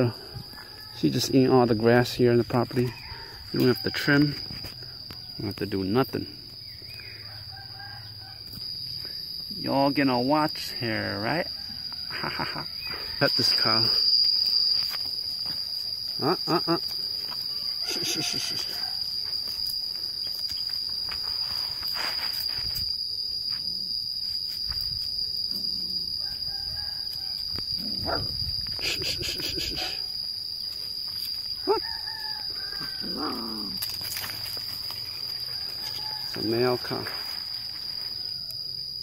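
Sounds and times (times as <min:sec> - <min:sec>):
high-pitched insect drone: 0:00.0 - 0:39.0
short calls: 0:16.1 - 0:19.2.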